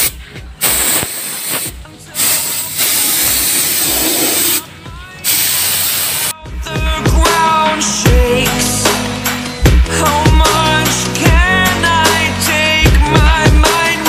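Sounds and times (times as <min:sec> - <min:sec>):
spray gun hissing: 0:00.0 - 0:04.6, 0:05.2 - 0:06.3.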